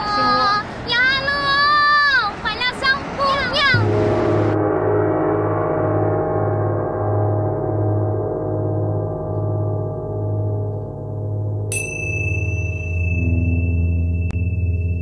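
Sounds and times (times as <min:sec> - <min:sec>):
gong-like ringing chord: 0:03.8 - 0:15.0
high bell-like tone: 0:03.8 - 0:15.0
pulsing low drone: 0:03.8 - 0:15.0.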